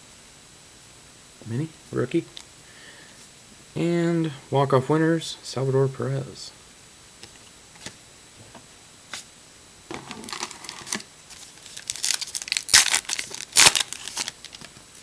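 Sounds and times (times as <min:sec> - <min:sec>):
wrapper ripping: 0:09.9 - 0:14.7
wrapper crinkling: 0:09.9 - 0:14.8.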